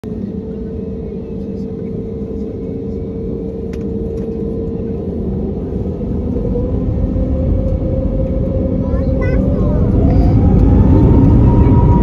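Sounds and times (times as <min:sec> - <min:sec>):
jet engines rumbling in cabin: 0:00.0 - 0:12.0.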